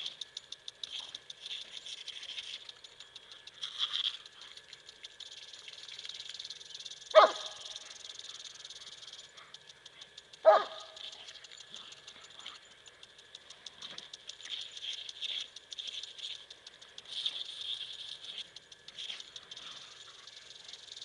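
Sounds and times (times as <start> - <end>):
hose spraying water on grass: 0.0 - 21.0
dog barking: 7.1 - 7.7, 10.4 - 11.0.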